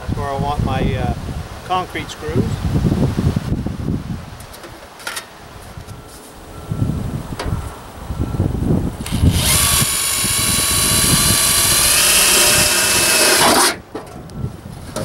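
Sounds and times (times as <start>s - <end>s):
drill drilling through sheet metal: 9.0s - 13.8s.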